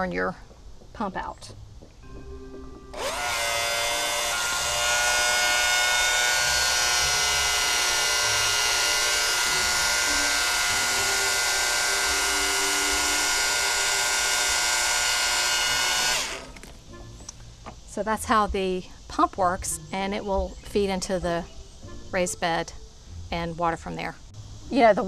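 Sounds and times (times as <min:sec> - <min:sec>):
electric pump motor whine: 0:02.8 - 0:16.9.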